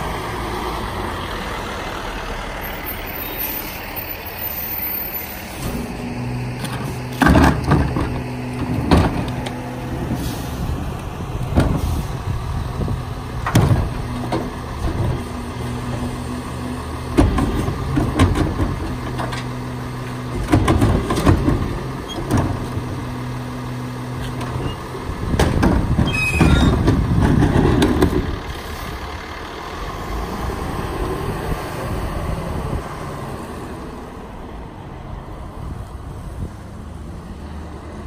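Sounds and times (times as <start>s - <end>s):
garbage truck engine droning: 0.0s - 38.0s
cart tipper clanks and bangs: 17.1s - 19.6s, 20.2s - 23.0s, 25.3s - 28.5s.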